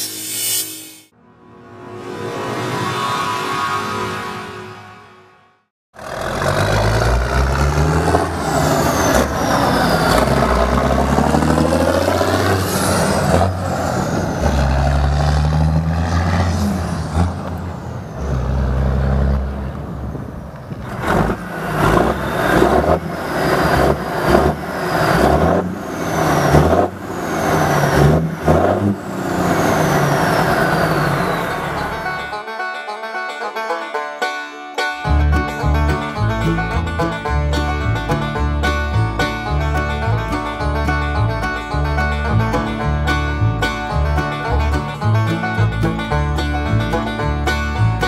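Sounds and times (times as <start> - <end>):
diesel engine rev blips: 6.0 - 32.4
diesel truck accelerating through gears: 6.0 - 32.4, 35.0 - 48.0.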